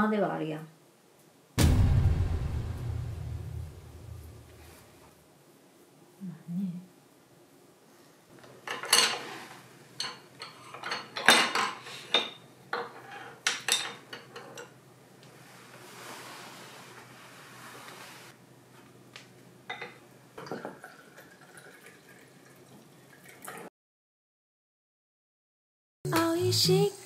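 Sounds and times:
liquid pouring into glass: 0:20.5 - 0:23.7.

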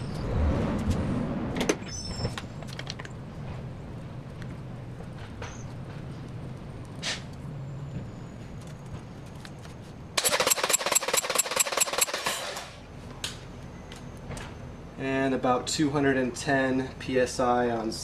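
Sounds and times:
engine cranking on starter motor: 0:10.2 - 0:12.8.

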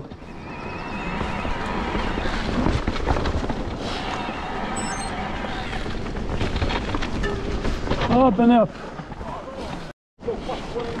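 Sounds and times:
bike rattling: 0:05.7 - 0:09.3.

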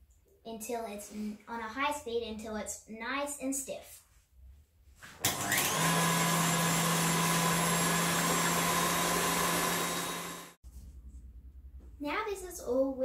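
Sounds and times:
stand mixer motor whining: 0:05.2 - 0:10.6.

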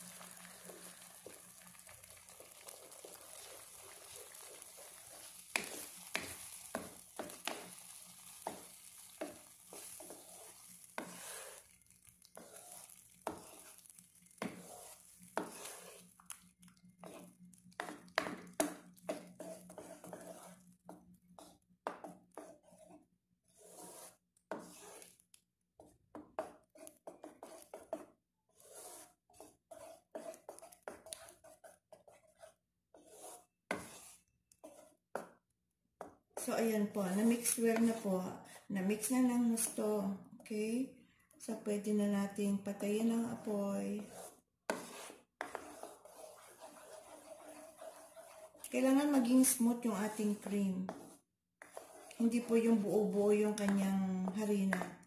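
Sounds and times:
wooden spoon scraping a pan: 0:00.0 - 0:25.2, 0:25.8 - 0:35.3, 0:36.4 - 0:40.7, 0:41.4 - 0:55.0.

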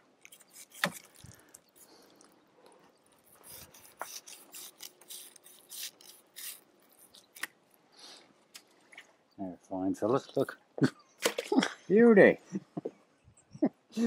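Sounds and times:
knife scraping fish backbone: 0:00.2 - 0:01.3, 0:03.2 - 0:07.2.

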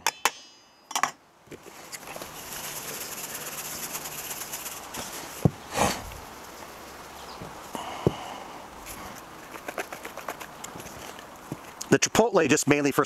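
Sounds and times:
spice granules rattling: 0:01.7 - 0:05.4, 0:09.4 - 0:11.2.

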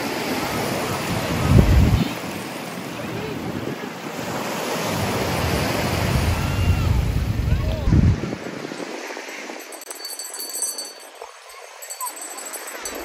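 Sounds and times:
small waves on sandy beach: 0:00.0 - 0:13.0
wind buffeting microphone: 0:00.0 - 0:13.0.

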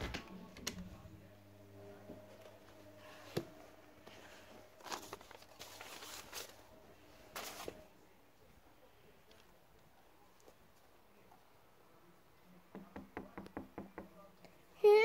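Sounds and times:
faint steady hum: 0:00.0 - 0:10.2.

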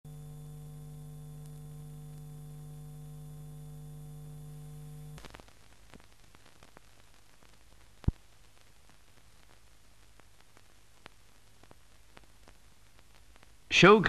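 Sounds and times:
electrical buzz-hum: 0:00.0 - 0:08.6
faint hiss: 0:00.1 - 0:14.0.

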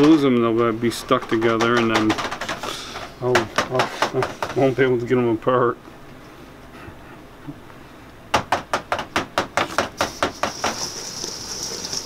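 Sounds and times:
cherries rolling in sugar hiss: 0:10.0 - 0:12.0.

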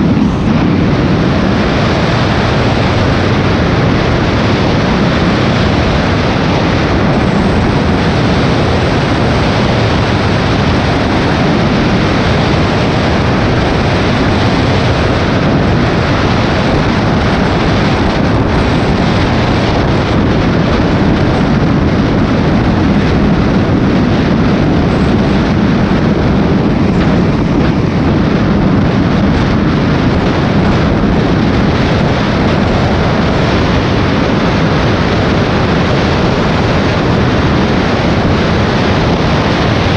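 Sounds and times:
motorcycle engine running: 0:00.0 - 0:39.9
wind rush on microphone: 0:00.0 - 0:39.9.

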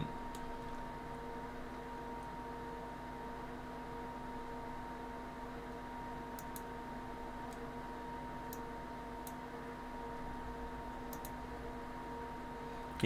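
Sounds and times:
electrical hum: 0:00.0 - 0:13.0
faint mouse clicks: 0:06.3 - 0:06.7, 0:11.1 - 0:11.4.

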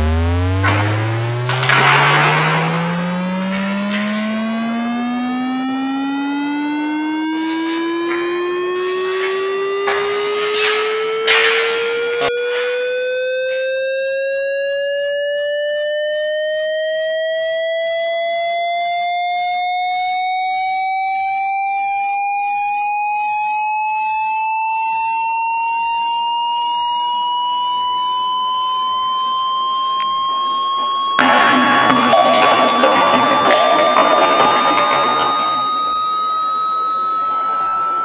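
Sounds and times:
synthesized rising tone: 0:00.0 - 0:17.9, 0:27.6 - 0:38.0.

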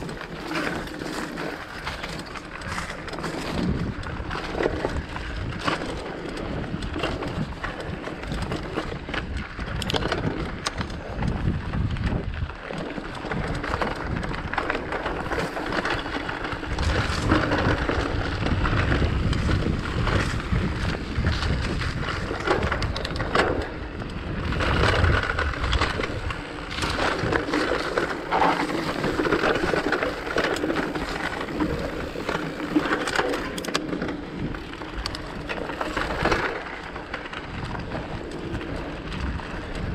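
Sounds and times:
bike knocking and rattling: 0:00.0 - 0:39.9
wind rumble on microphone: 0:00.0 - 0:39.9
tyres crunching on gravel: 0:10.8 - 0:39.9.

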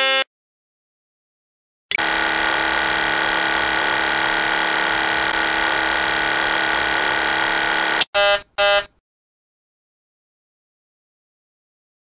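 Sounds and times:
short warning horn beeps: 0:08.0 - 0:08.9.

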